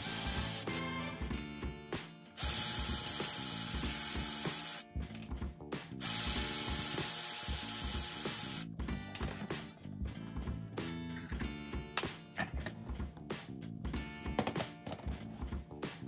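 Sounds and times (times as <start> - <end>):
ratchet wrench clicking: 2.4 - 5.3, 6.0 - 8.7.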